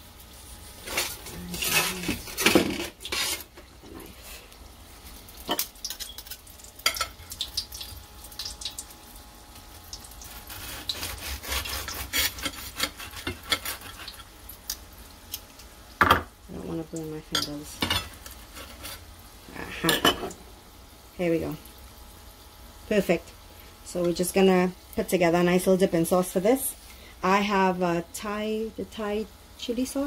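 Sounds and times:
fried crust crackling: 0.2 - 15.8, 17.3 - 19.8
utensils scraping ceramic plate: 0.8 - 3.5
knife sawing through crust: 10.3 - 14.2, 18.4 - 19.0.

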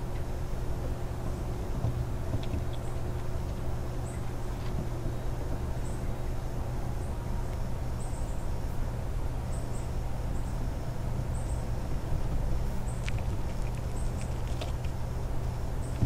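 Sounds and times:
squirrel handling peanuts: 1.2 - 6.0, 11.8 - 16.0.

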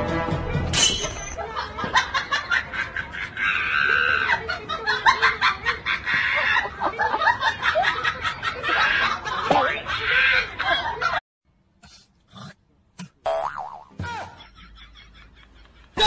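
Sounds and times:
people snickering and chuckling: 1.4 - 11.2.

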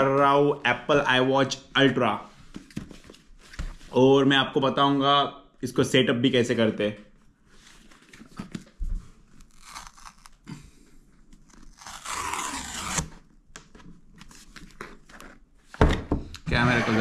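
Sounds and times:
cardboard tear strip ripping: 9.4 - 10.6, 11.4 - 13.3.

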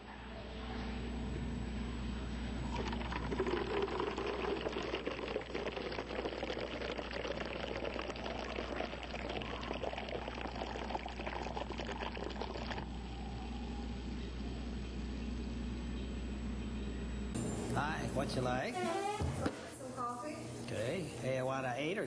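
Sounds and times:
liquid pouring in a stream: 2.7 - 12.9.

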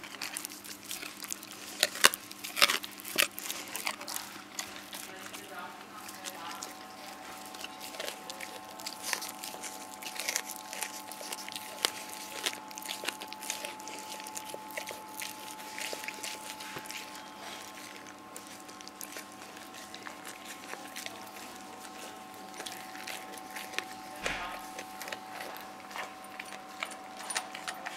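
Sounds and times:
bone cracking and crunching: 0.0 - 27.9
dog chewing bone: 0.0 - 27.9.

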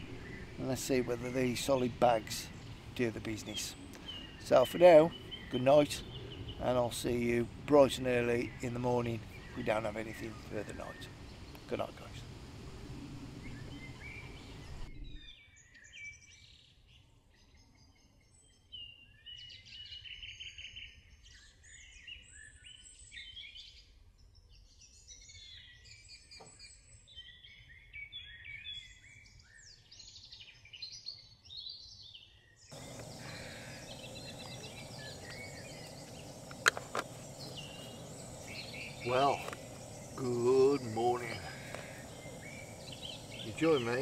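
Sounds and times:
outdoor background hiss: 0.0 - 14.9, 32.7 - 44.0
songbirds singing: 0.0 - 23.8, 24.7 - 44.0.

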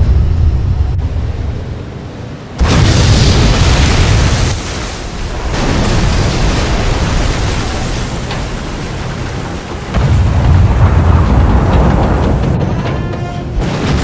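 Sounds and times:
explosion blast with rumble: 2.6 - 8.0, 9.8 - 12.7, 13.6 - 14.0.

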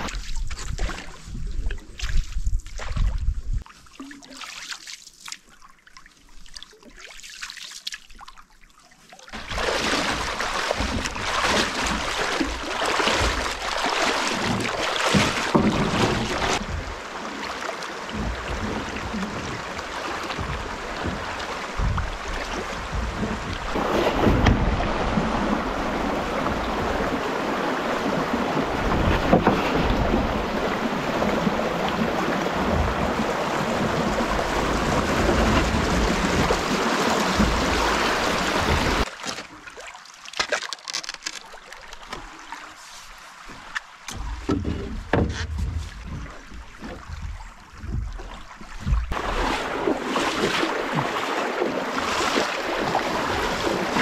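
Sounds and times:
paddle dipping in water: 0.0 - 54.0
water rushing over rocks: 9.3 - 39.2, 48.8 - 54.0
knocks against canoe: 9.4 - 17.1, 18.0 - 27.1, 28.0 - 39.5, 43.5 - 49.3.

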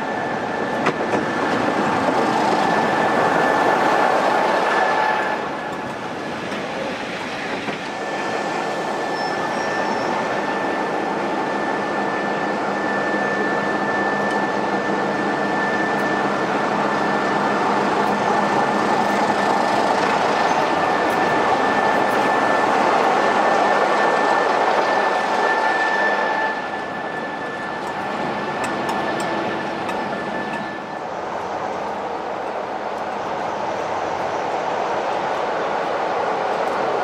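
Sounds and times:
diesel locomotive engine: 0.0 - 37.0
high whine: 7.8 - 36.9.

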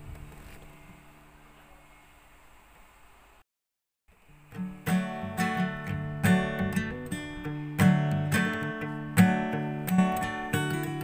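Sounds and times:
acoustic guitar strumming chords: 4.2 - 11.0.

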